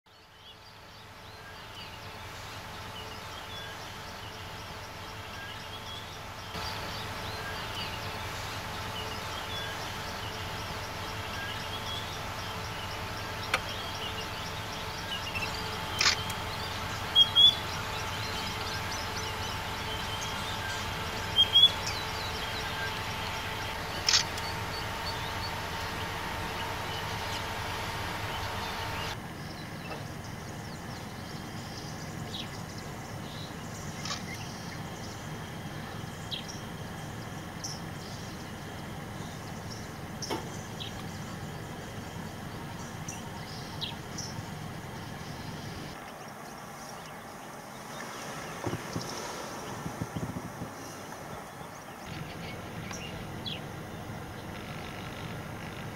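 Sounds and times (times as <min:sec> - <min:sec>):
bird chirps: 0:00.1 - 0:55.9
steady background hum: 0:00.1 - 0:55.9
sharp clicks: 0:15.9 - 0:16.4, 0:24.0 - 0:24.5.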